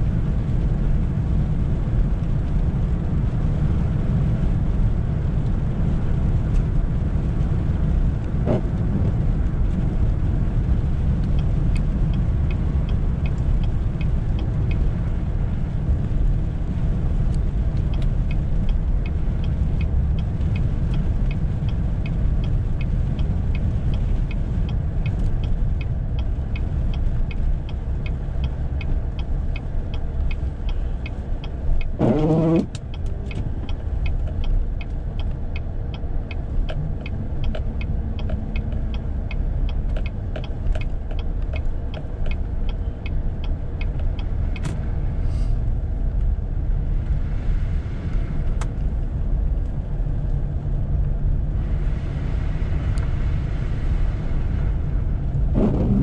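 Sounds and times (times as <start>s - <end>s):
truck engine rumble: 0.0s - 56.0s
fast light ticking: 15.9s - 44.7s.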